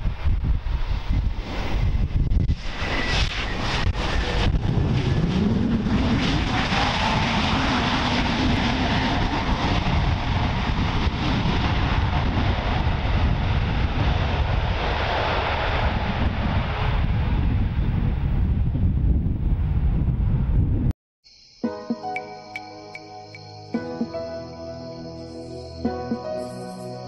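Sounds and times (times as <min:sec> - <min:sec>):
jet engine roar: 0:00.0 - 0:20.0.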